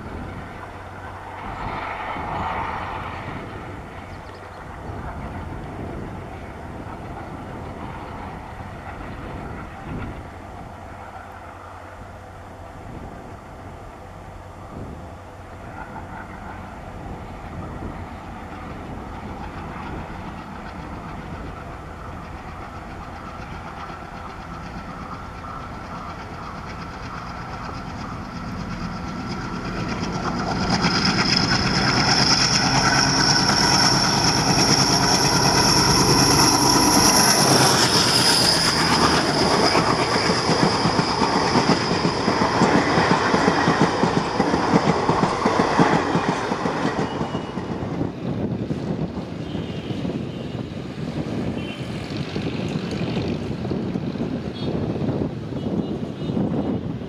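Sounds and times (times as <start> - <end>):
diesel locomotive engine: 0.0 - 57.0
train coaches rolling past: 0.0 - 57.0
high steady whine: 20.8 - 48.2.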